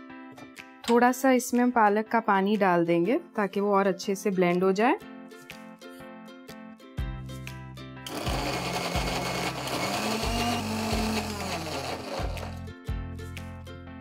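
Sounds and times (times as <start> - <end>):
mixer grinder blending: 8.1 - 12.6.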